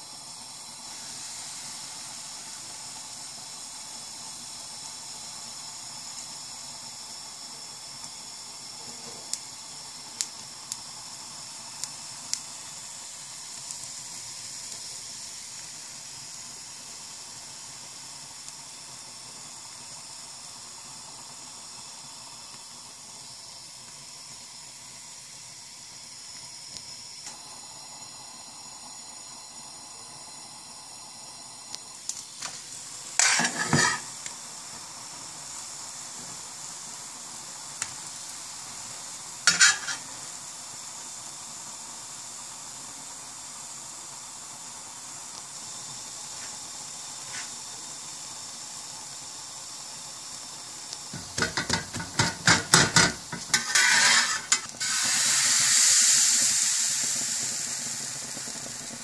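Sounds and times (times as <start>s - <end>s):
batter sizzling in hot pan: 0.0s - 59.0s
pancake sizzling in hot oil: 0.0s - 59.0s
metal spatula scraping a pan: 33.2s - 34.1s, 39.4s - 40.1s, 51.5s - 55.1s.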